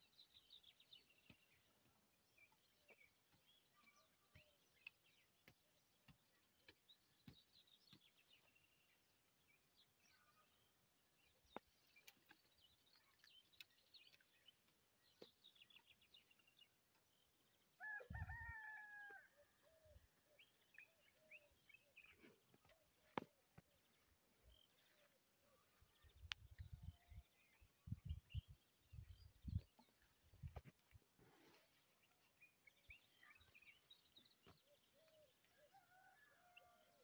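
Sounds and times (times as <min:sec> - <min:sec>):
small birds chirping: 0:00.0 - 0:17.8, 0:19.8 - 0:36.8
faint rooster crowing: 0:17.8 - 0:20.0, 0:35.5 - 0:37.0.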